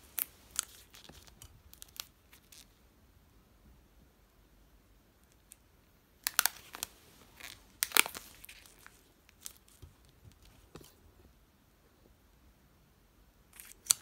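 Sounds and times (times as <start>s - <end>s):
plastic wrapping crackling: 0.0s - 2.7s, 6.2s - 10.9s.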